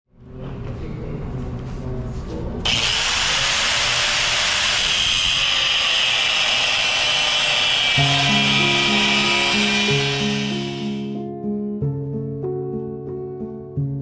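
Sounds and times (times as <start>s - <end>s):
angle grinder grinding steel: 2.7s - 11.2s.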